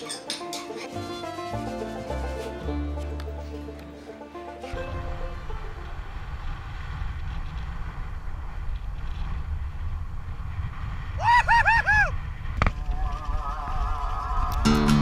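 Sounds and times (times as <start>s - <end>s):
faint music: 0.0s - 6.7s
wind buffeting microphone: 4.7s - 14.7s
buggy wheels rumbling on sand: 4.7s - 15.0s
rising and falling whoops: 11.1s - 14.9s.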